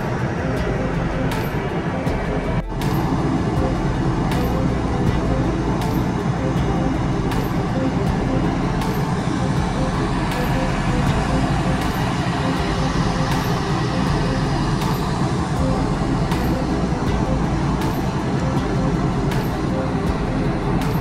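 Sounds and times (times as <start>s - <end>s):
faint steady hum: 0.0s - 21.0s
ship engines rumbling: 0.0s - 21.0s.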